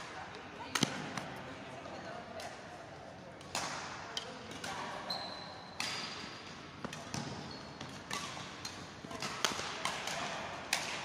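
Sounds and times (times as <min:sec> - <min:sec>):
racket hitting shuttlecock: 0:03.4 - 0:05.0, 0:05.8 - 0:11.0.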